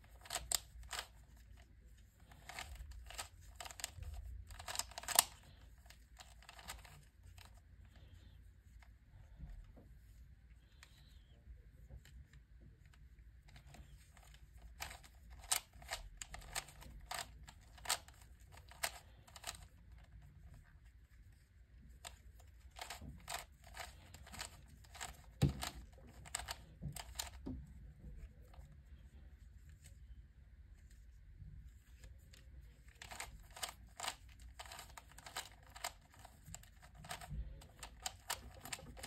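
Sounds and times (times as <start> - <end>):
cube puzzle clicking: 0.0 - 1.6, 2.3 - 7.6, 13.5 - 20.2, 22.0 - 27.5, 32.8 - 39.0.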